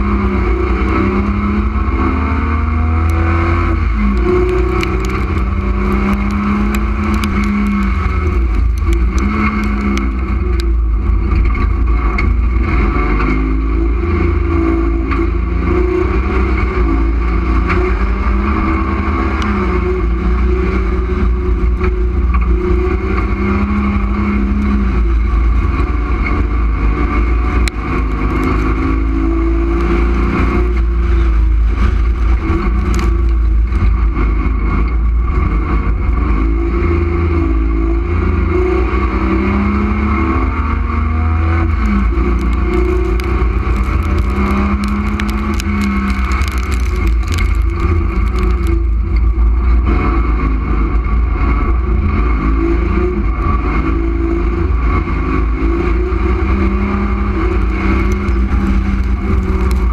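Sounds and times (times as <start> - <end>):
race car engine revving: 0.0 - 59.9
ticks and rattles: 41.8 - 49.5, 57.2 - 59.9.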